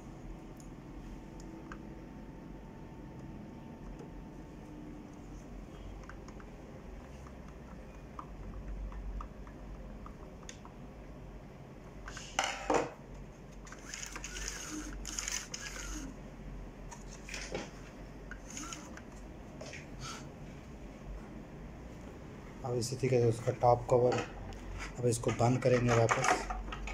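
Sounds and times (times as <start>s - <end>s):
printer parts clicking and knocking: 25.1s - 26.9s
clatter of parts: 25.2s - 26.9s.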